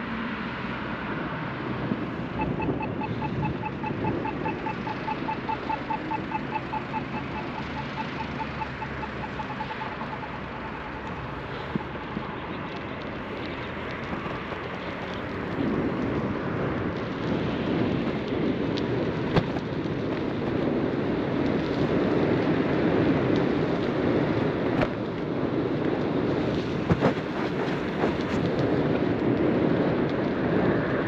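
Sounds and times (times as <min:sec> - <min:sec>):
wind buffeting microphone: 0:01.1 - 0:31.0
bicycle tyres rolling: 0:01.4 - 0:31.0.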